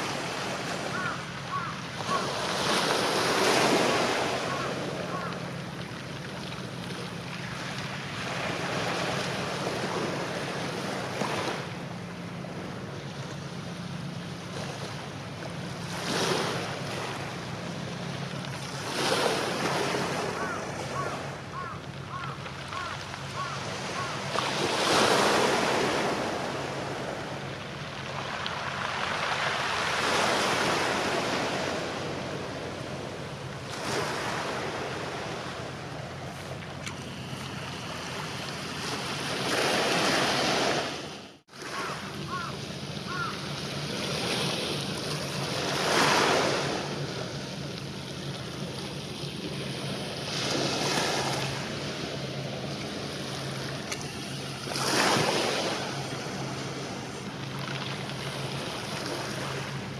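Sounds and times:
waves washing onto pebble beach: 0.0 - 5.4, 54.6 - 59.8.

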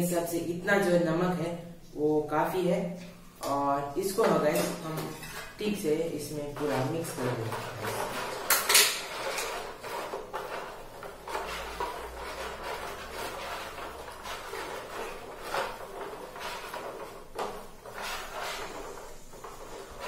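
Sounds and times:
metal spoon scraping plastic tray: 4.0 - 20.0.

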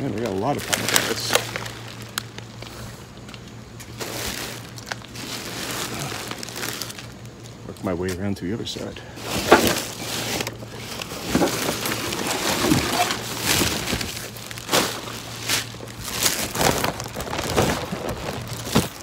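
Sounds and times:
plastic bags rustling: 0.0 - 19.0
cardboard boxes scraping: 9.2 - 19.0.

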